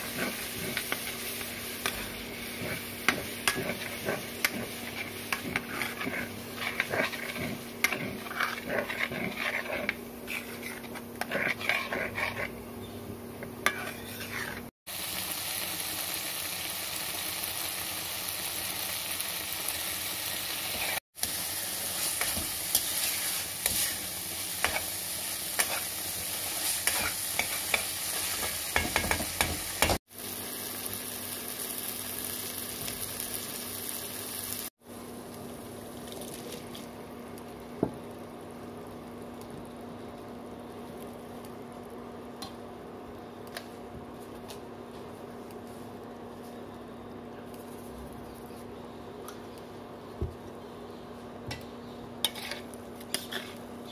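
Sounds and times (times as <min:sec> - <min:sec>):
masala sizzling in oil: 0:00.0 - 0:53.9
steel ladle scraping pan: 0:02.6 - 0:12.6, 0:13.7 - 0:14.7, 0:52.3 - 0:53.6.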